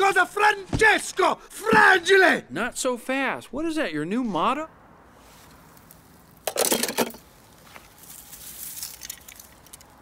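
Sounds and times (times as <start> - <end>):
dry grass and leaves rustling: 5.0 - 10.0.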